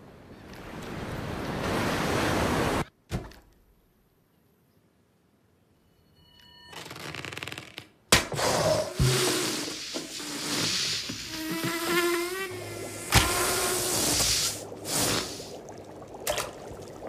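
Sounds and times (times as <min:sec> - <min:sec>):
buzzing hissing: 0:08.9 - 0:15.5.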